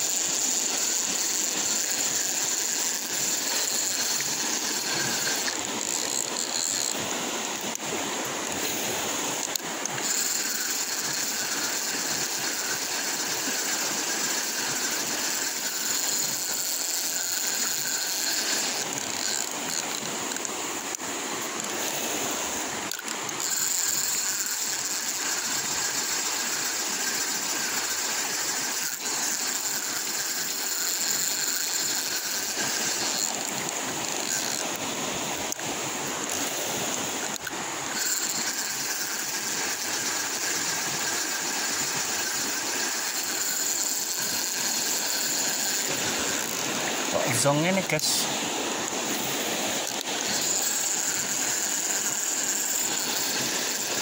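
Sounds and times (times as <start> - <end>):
river rushing over stones: 0.0 - 54.0
high even hiss: 36.4 - 54.0.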